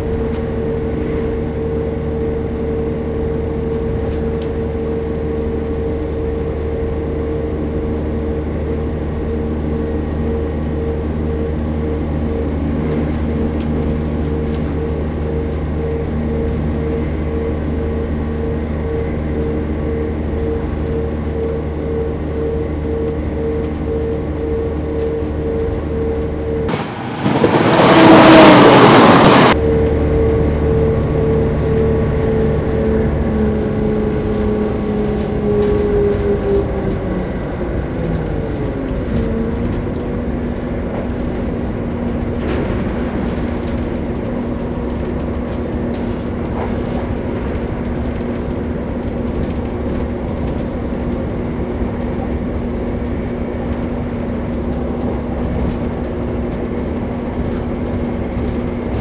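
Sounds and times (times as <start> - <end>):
train engine hum: 0.0 - 59.0
train rumble: 0.0 - 59.0.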